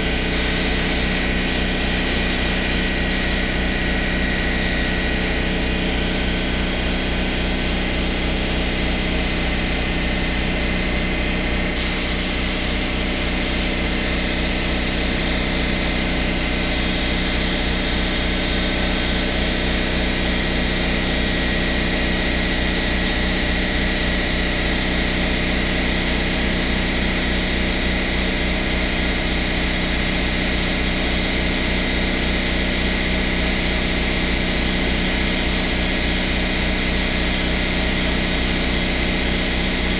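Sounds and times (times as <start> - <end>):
air compressor running: 0.0 - 39.9
paint spray gun hissing: 0.3 - 3.6, 11.8 - 39.9.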